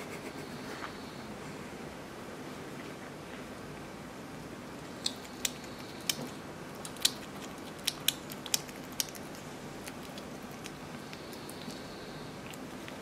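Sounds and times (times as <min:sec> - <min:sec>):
hedgehog crunching food: 0:04.8 - 0:13.0.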